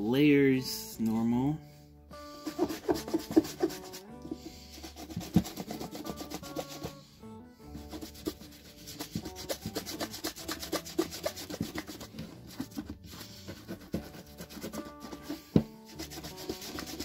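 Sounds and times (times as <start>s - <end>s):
background music: 0.0s - 17.0s
shoe brush scrubbing leather boot: 2.3s - 7.0s, 7.7s - 17.0s.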